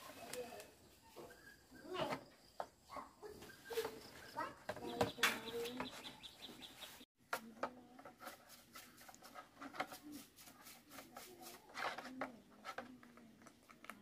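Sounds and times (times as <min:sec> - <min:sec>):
brush scrubbing in plastic tray: 0:08.2 - 0:12.2.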